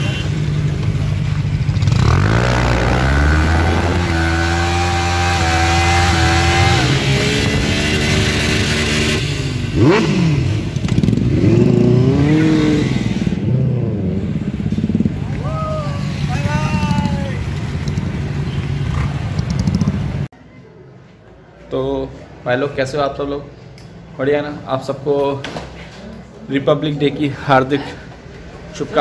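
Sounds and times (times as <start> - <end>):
motorcycle engines revving: 0.0 - 20.3.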